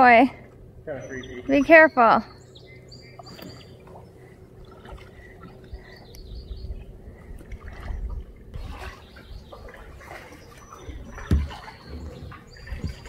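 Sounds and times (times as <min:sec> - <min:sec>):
water lapping and dripping: 0:01.2 - 0:13.0
small splashes: 0:03.2 - 0:06.0, 0:07.1 - 0:13.0
low thump: 0:11.2 - 0:11.6.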